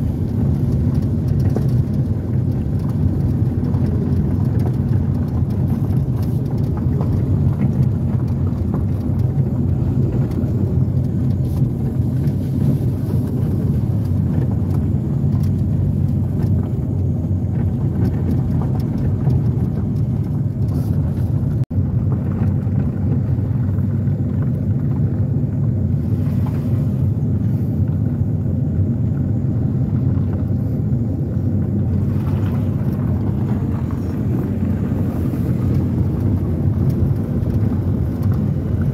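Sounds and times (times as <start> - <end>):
car rumbling on gravel: 0.0 - 38.9.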